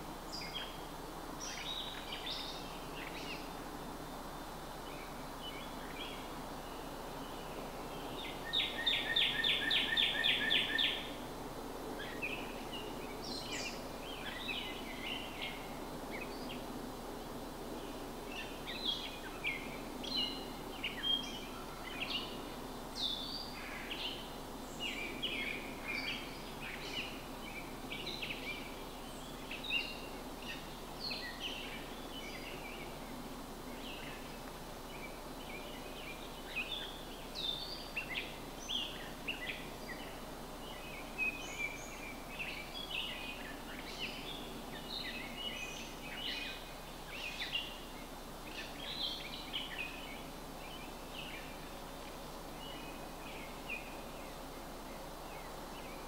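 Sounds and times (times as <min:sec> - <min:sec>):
songbirds chirping and singing: 0:04.9 - 0:11.2, 0:17.8 - 0:56.0.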